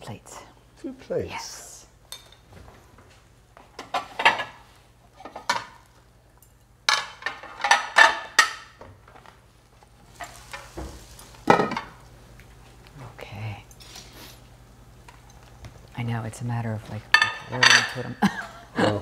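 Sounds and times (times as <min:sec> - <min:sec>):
ceramic plates clattering: 0:03.8 - 0:04.6, 0:06.9 - 0:08.7, 0:17.1 - 0:18.2.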